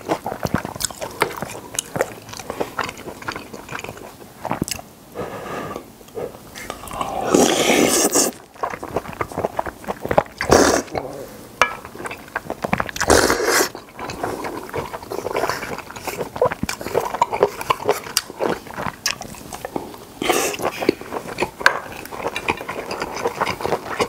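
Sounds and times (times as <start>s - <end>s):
wet chewing and lip-smacking: 0.0s - 4.9s, 8.0s - 11.0s, 11.8s - 24.0s
slurping noodles: 5.2s - 11.2s, 12.9s - 24.0s.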